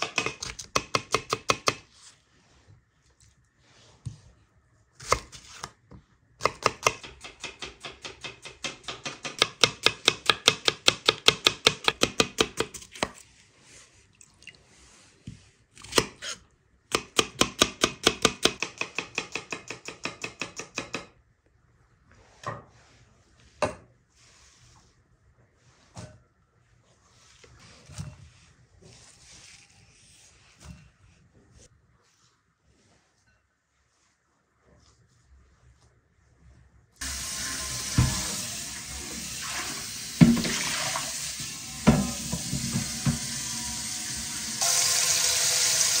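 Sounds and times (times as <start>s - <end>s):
knife chopping food: 0.0s - 1.8s, 6.4s - 13.2s.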